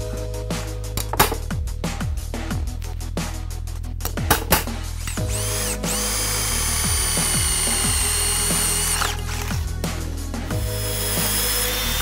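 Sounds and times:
electronic music with steady beat: 0:00.0 - 0:12.0
cordless drill boring into metal: 0:05.0 - 0:09.7, 0:10.6 - 0:12.0.

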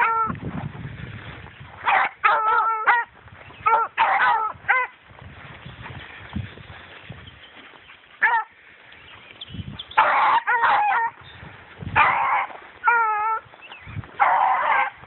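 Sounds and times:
hounds baying: 0:00.0 - 0:00.3, 0:01.8 - 0:05.0, 0:08.2 - 0:08.6, 0:09.9 - 0:11.3, 0:11.9 - 0:15.0.

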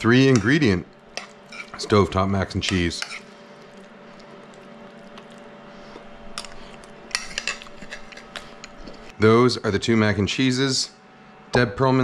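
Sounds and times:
faint steady hum: 0:00.0 - 0:12.0
cutlery clinking on ceramic bowls: 0:07.1 - 0:08.8.

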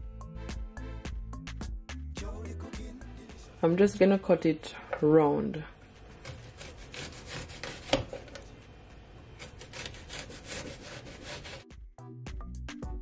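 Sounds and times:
background music with a beat: 0:00.0 - 0:03.6, 0:11.6 - 0:13.0
knife slicing onion on wooden board: 0:06.1 - 0:08.4, 0:09.4 - 0:11.7.

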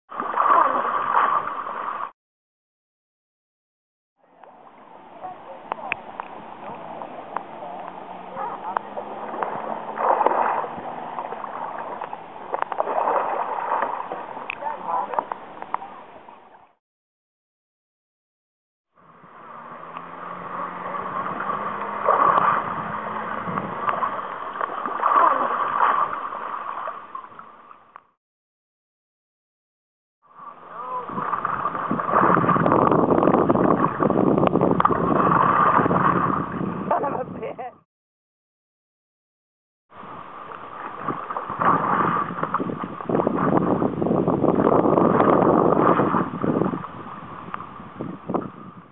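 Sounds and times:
paddle sweeping through water: 0:00.1 - 0:02.1, 0:04.2 - 0:16.8, 0:19.0 - 0:28.2, 0:30.3 - 0:37.5, 0:40.0 - 0:48.9
water splashing: 0:00.1 - 0:02.1, 0:04.2 - 0:16.8, 0:19.0 - 0:28.2, 0:30.3 - 0:37.8, 0:40.0 - 0:48.9
wind rumbling on microphone: 0:04.2 - 0:16.8, 0:19.0 - 0:27.5, 0:30.3 - 0:37.8, 0:40.0 - 0:48.9.

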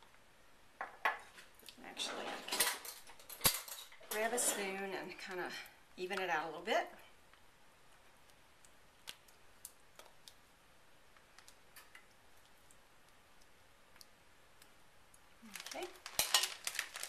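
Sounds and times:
plastic bag crinkling: 0:15.4 - 0:17.0.

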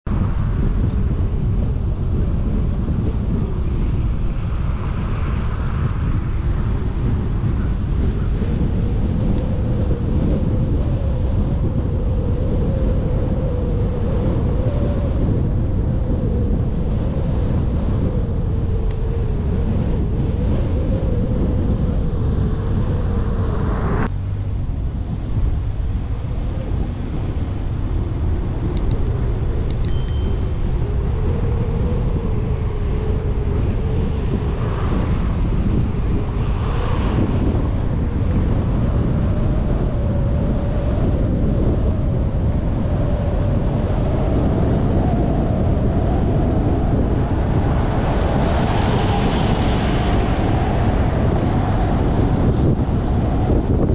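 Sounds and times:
wind noise: 0:00.0 - 0:53.9
car engine and road rumble: 0:18.6 - 0:30.8
short high beeps: 0:29.7 - 0:30.8.

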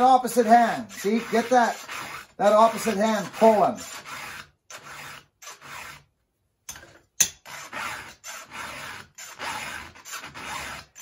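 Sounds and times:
file rasping on saw chain: 0:00.0 - 0:06.1, 0:07.3 - 0:11.0.

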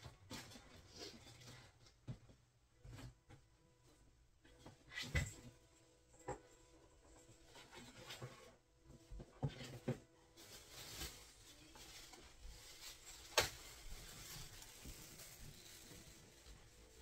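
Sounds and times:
faint rustling: 0:05.3 - 0:17.0.

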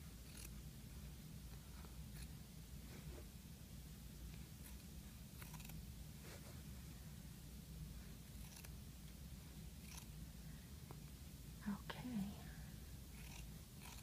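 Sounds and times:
low steady hum: 0:00.0 - 0:14.0
small scissors snipping fabric: 0:00.3 - 0:00.6, 0:05.4 - 0:05.8, 0:08.4 - 0:08.8, 0:09.8 - 0:10.1, 0:13.2 - 0:14.0.

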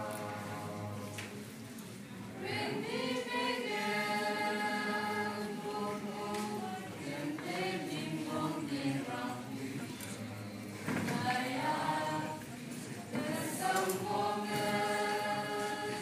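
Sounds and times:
group singing together: 0:00.0 - 0:01.6, 0:02.3 - 0:16.0.

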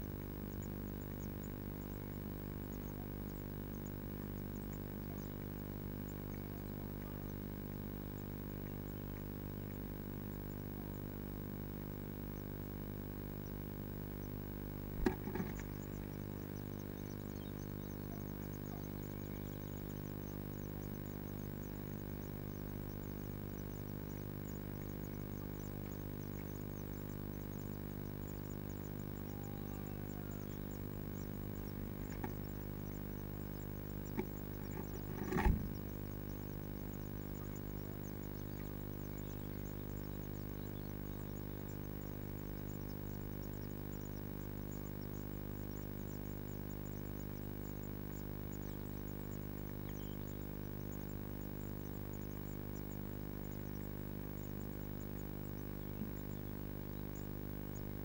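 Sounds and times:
steady electrical hum: 0:00.0 - 0:58.0
bird scraping and thumping: 0:15.0 - 0:15.8, 0:32.0 - 0:32.4, 0:34.1 - 0:36.0
faint knocks: 0:15.0 - 0:15.8.

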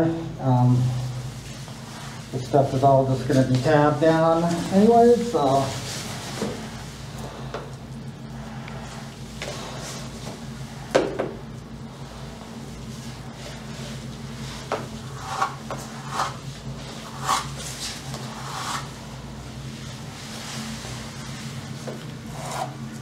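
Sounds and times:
stick scraping in plastic cup: 0:15.1 - 0:16.4, 0:17.0 - 0:18.9.

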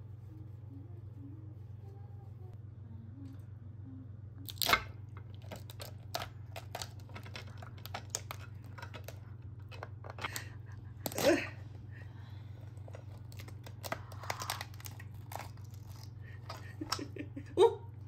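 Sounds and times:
steady low hum: 0:00.0 - 0:18.0
crunching and crackling: 0:04.5 - 0:11.8, 0:12.5 - 0:17.4.

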